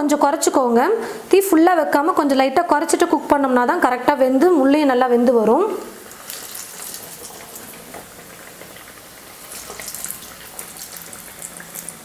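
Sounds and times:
food deep-frying in hot oil: 5.1s - 12.0s.

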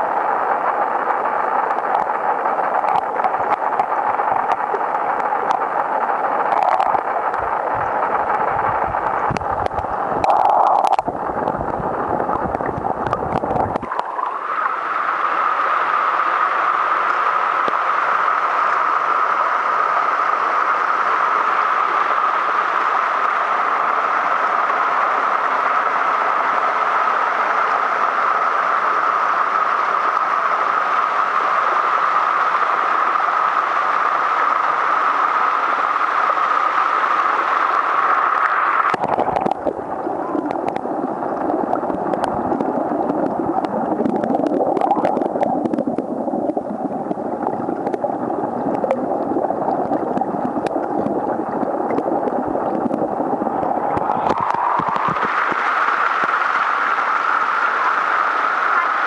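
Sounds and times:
underwater churning and bubbles: 0.0s - 59.0s
waterfall over rocks: 0.1s - 59.0s
underwater clicks: 1.6s - 14.3s, 37.7s - 56.4s.

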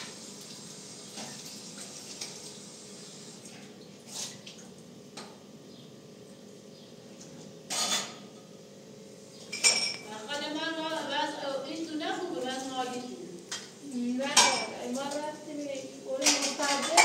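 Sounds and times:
dishes clattering: 7.7s - 8.3s, 9.5s - 10.1s, 14.3s - 14.8s, 16.2s - 17.0s.

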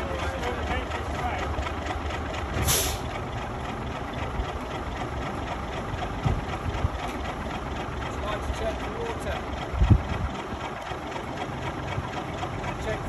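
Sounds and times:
crane engine idling: 0.0s - 13.0s
brief hiss: 2.6s - 3.0s.

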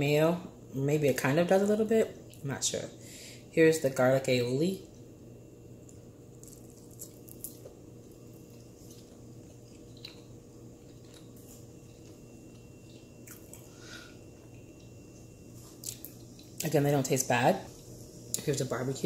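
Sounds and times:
steady low hum: 0.0s - 19.0s
person chewing food: 5.8s - 15.0s, 15.7s - 16.6s.

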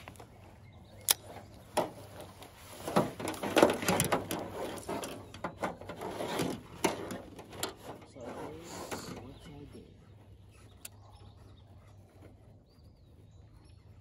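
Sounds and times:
tackle clicks rattles and knocks: 2.8s - 8.1s.

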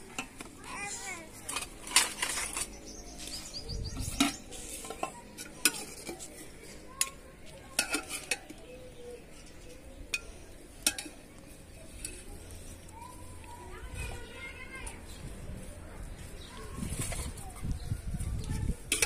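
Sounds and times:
metal ladle scraping a pot: 1.4s - 3.1s, 4.0s - 8.7s.

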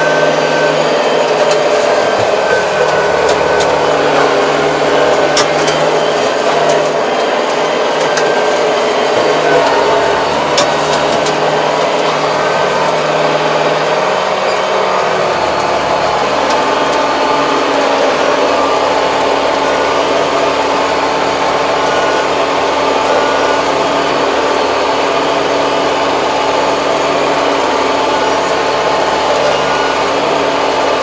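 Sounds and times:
tractor engine running: 0.0s - 31.0s
clicks and rattles in cab: 1.3s - 8.6s.

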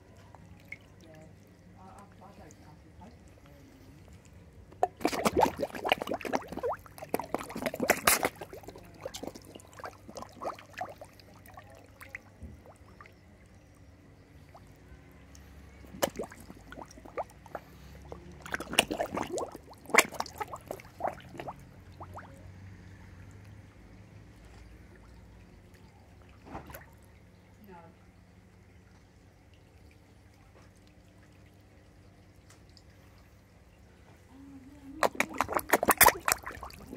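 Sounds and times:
fish splashing at water surface: 4.8s - 13.2s, 14.4s - 23.5s, 34.8s - 36.9s.

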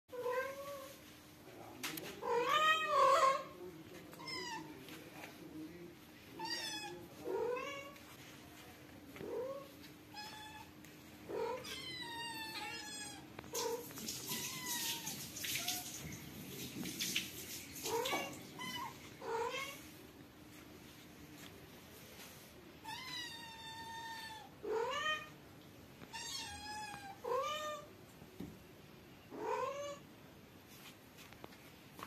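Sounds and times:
cats meowing: 2.1s - 4.8s, 6.4s - 8.0s, 9.2s - 16.0s, 17.8s - 19.9s, 22.8s - 25.4s, 26.0s - 27.9s.

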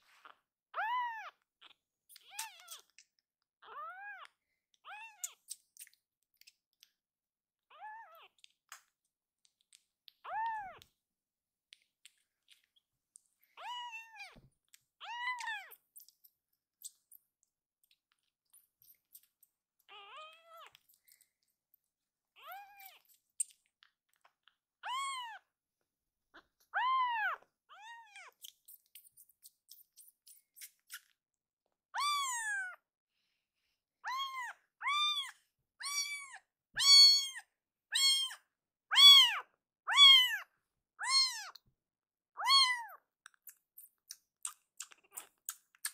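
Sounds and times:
kitten meowing loudly: 34.1s - 40.4s, 41.0s - 41.6s, 42.4s - 43.0s.

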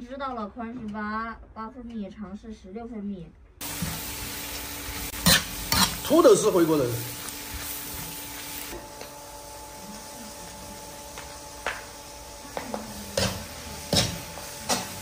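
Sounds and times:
food sizzling in a wok: 3.6s - 15.0s.

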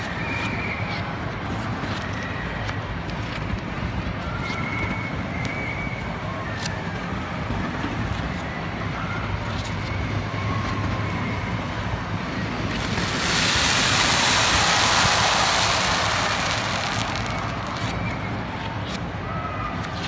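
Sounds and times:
fireworks crackling hiss: 0.0s - 0.8s, 12.1s - 20.0s
distant fireworks rumble: 5.0s - 20.0s
faint firework pops: 12.7s - 19.2s.

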